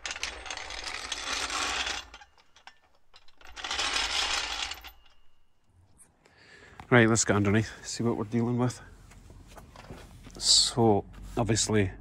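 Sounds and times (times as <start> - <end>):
loose metal jingling: 0.0 - 5.7.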